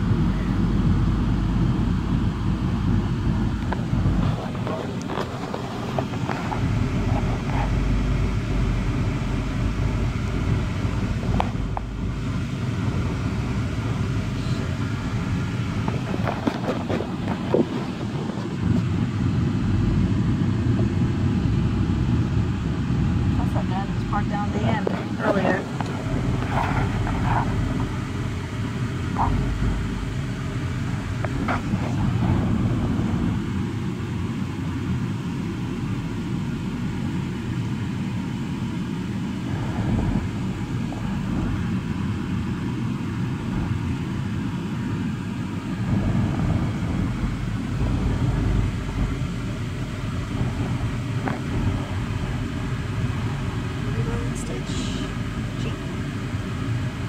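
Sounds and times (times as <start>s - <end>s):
car engine and tyre rumble: 0.0s - 57.0s.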